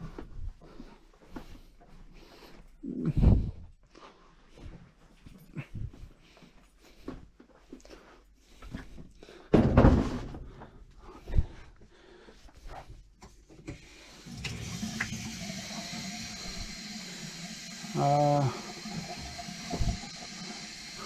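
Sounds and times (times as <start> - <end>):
heavy thump: 9.5 - 10.4.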